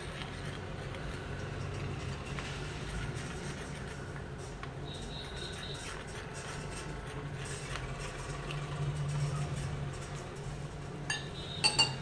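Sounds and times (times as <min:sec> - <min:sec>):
metal clinking against glass bowl: 0:11.1 - 0:12.0.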